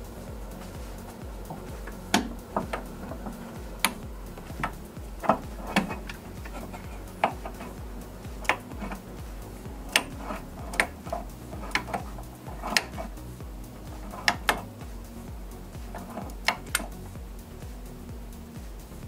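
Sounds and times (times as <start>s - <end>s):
hand ratchet clicking: 0.5s - 15.1s, 15.8s - 17.0s.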